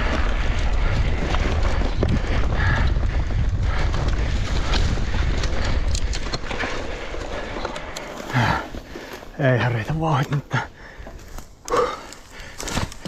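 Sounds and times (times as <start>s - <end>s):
wind buffeting microphone: 0.0s - 9.1s
bike rattling over ground: 0.0s - 10.2s.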